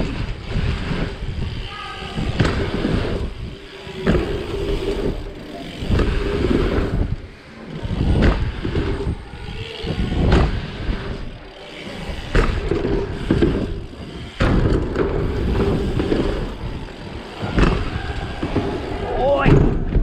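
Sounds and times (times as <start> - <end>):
bicycle tyres rumbling over wood: 0.0 - 20.0.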